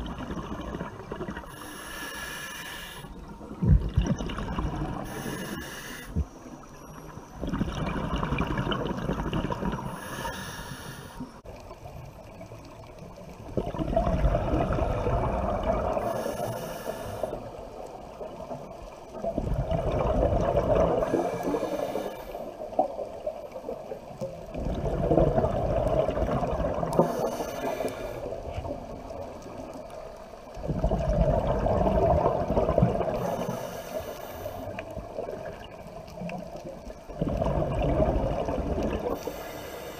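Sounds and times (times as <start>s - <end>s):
exhaled bubbles underwater: 0.0s - 1.7s, 3.1s - 10.6s, 11.4s - 39.6s
regulator hiss: 1.5s - 3.2s, 5.0s - 7.0s, 9.9s - 11.4s, 16.0s - 17.6s.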